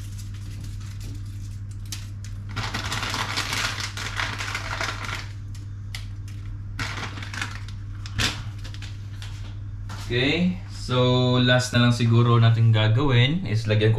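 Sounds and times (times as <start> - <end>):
packet rustling and crinkling: 0.0 - 9.5
steady low hum: 0.0 - 13.9.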